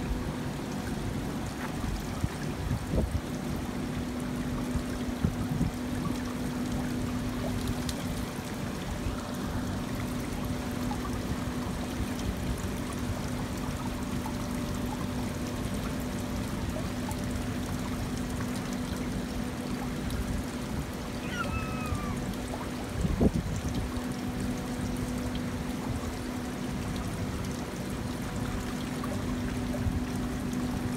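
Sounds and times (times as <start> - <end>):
water trickling down fountain: 0.0 - 30.9.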